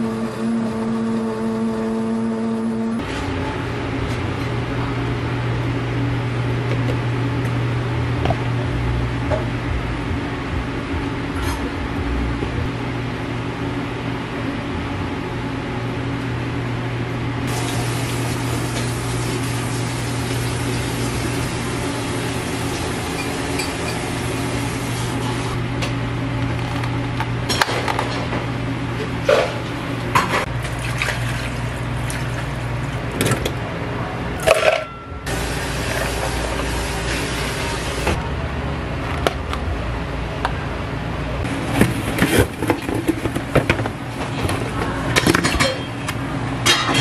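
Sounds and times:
hum of cafe equipment: 0:00.0 - 0:47.0.

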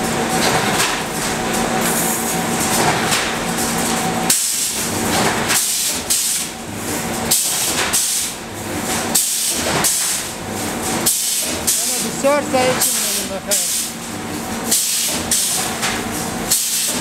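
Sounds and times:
welding machine hissing bursts: 0:11.1 - 0:14.0
machine hum: 0:11.6 - 0:14.7.

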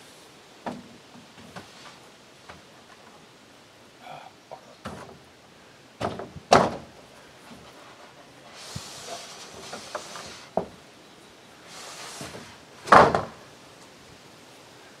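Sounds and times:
soft rushing hiss: 0:00.0 - 0:15.0
solar panels knocking on wooden rack: 0:04.8 - 0:05.3, 0:06.0 - 0:07.0, 0:12.8 - 0:13.4.

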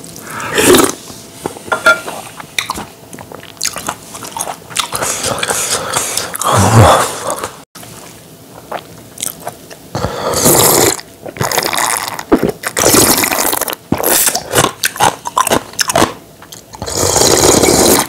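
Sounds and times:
person slurping and gulping: 0:00.2 - 0:01.0, 0:10.0 - 0:15.6, 0:16.8 - 0:18.0.

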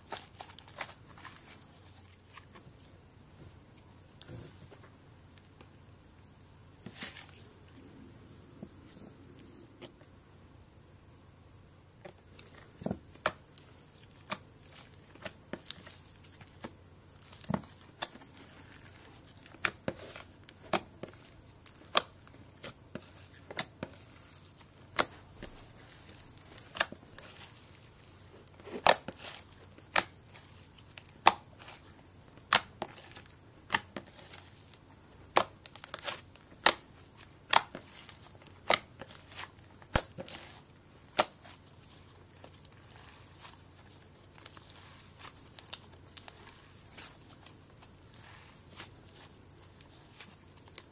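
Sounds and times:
slime popping and crackling: 0:13.1 - 0:50.9.

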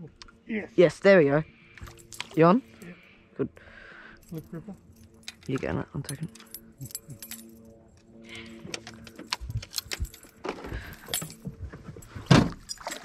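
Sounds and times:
steady hum: 0:00.0 - 0:12.8
fishing tackle clicking and rattling: 0:01.7 - 0:02.4, 0:04.2 - 0:11.5.

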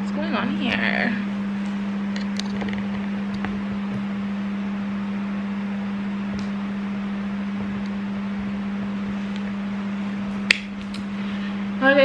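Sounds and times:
electric fan running: 0:00.0 - 0:12.0.

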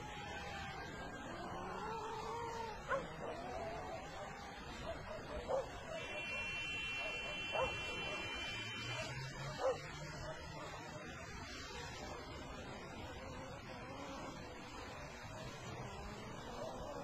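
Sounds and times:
steady background noise: 0:00.0 - 0:17.0
thin high tone: 0:05.9 - 0:09.7.

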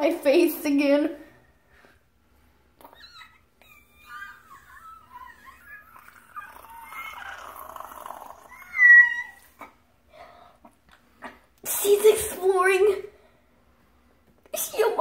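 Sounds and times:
high-pitched vocal whines and squeals: 0:02.8 - 0:09.8.

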